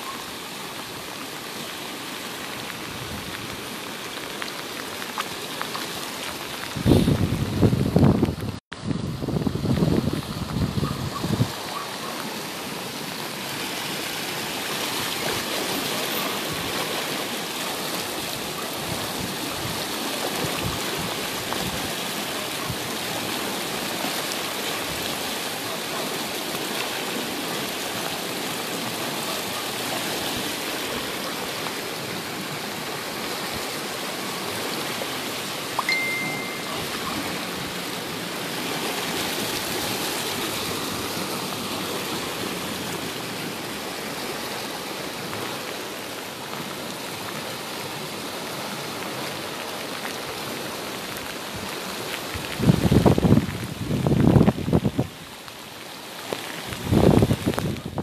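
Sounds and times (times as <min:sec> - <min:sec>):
floodwater rushing: 0:00.0 - 0:58.0
short high tone: 0:35.8 - 0:37.3.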